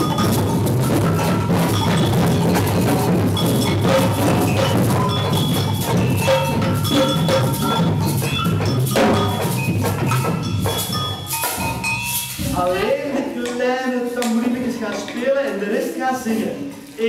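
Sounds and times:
ringing bell-like notes: 0:00.0 - 0:12.9
children playing samba percussion: 0:00.0 - 0:17.0.

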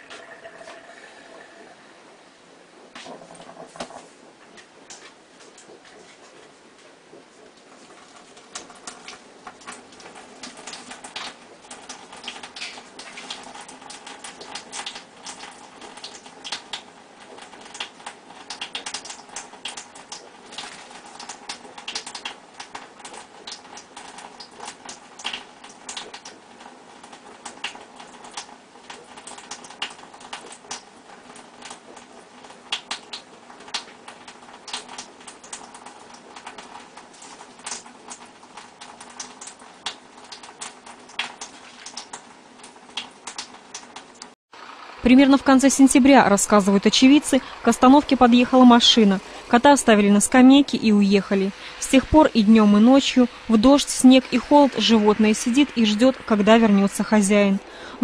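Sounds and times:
water trickling from tap: 0:00.0 - 0:02.0, 0:32.7 - 0:50.9.

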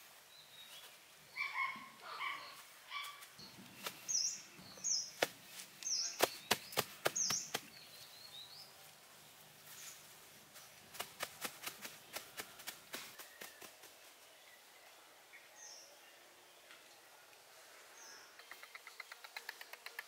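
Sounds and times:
bird chirping: 0:00.3 - 0:08.9, 0:18.0 - 0:20.0
hands pressing turf clicks and taps: 0:05.2 - 0:07.8.

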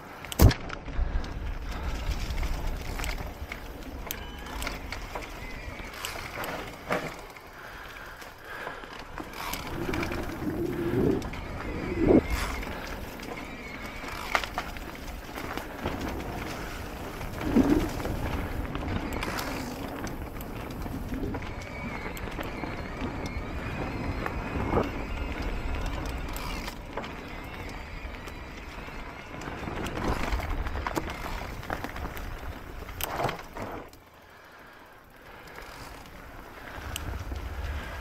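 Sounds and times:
tyre and frame rattle: 0:08.9 - 0:21.6
wind rumble on microphone: 0:09.3 - 0:33.8, 0:35.3 - 0:38.0.

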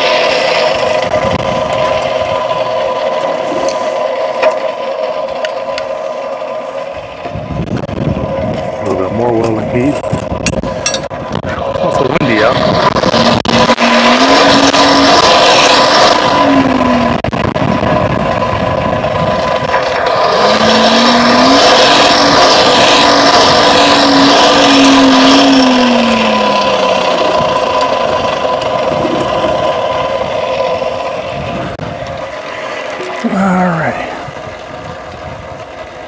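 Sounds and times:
forge running: 0:00.0 - 0:36.0
humming tone: 0:12.7 - 0:35.4.

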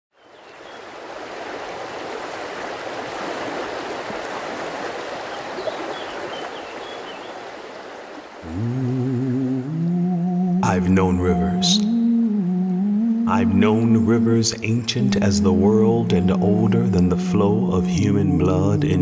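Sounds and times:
stream water rushing: 0:00.2 - 0:09.8
low humming voice: 0:08.4 - 0:19.0.

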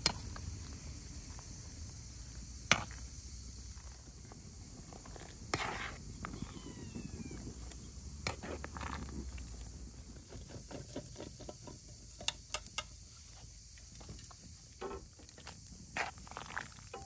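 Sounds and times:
metal spoon stirring in pot: 0:05.5 - 0:06.0, 0:16.0 - 0:17.0.

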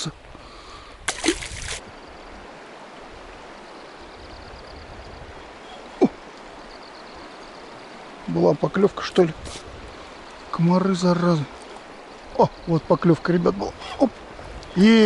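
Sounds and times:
river flowing over stones: 0:00.0 - 0:15.0
fish splashing into water: 0:01.0 - 0:01.9.

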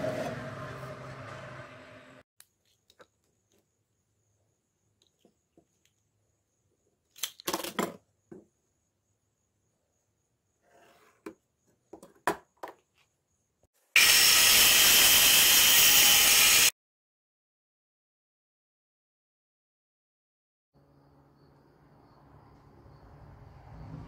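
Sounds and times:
power tool running: 0:14.0 - 0:16.7.

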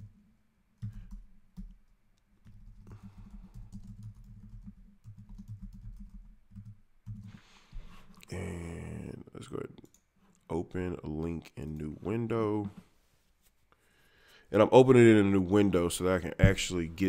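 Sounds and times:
typing on computer keyboard: 0:00.8 - 0:01.8, 0:02.4 - 0:07.4.

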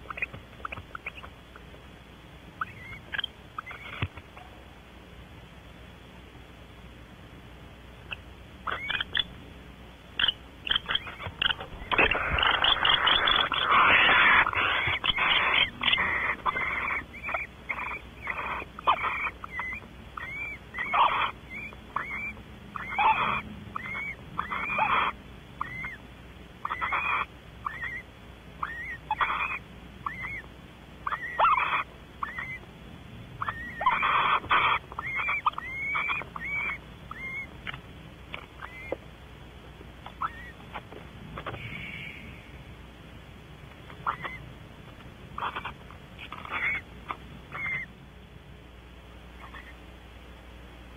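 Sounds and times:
owls chittering calls: 0:00.0 - 0:01.8, 0:02.6 - 0:04.6, 0:08.0 - 0:09.4, 0:10.1 - 0:32.7, 0:33.4 - 0:39.0, 0:40.0 - 0:40.8, 0:43.9 - 0:44.5, 0:45.3 - 0:48.0, 0:49.3 - 0:49.8
owl hissing screeches: 0:08.6 - 0:09.3, 0:10.2 - 0:26.0, 0:26.6 - 0:30.4, 0:31.0 - 0:32.6, 0:33.4 - 0:37.5, 0:38.6 - 0:39.0, 0:40.2 - 0:40.6, 0:41.5 - 0:42.6, 0:44.0 - 0:44.4, 0:45.4 - 0:46.9, 0:47.5 - 0:47.9, 0:49.4 - 0:49.8.

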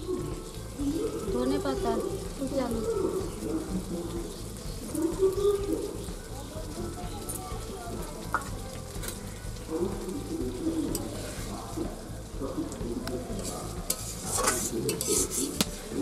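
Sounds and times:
curry bubbling and sizzling: 0:00.0 - 0:16.0
metal spatula scraping a wok: 0:10.9 - 0:11.7, 0:13.3 - 0:16.0.

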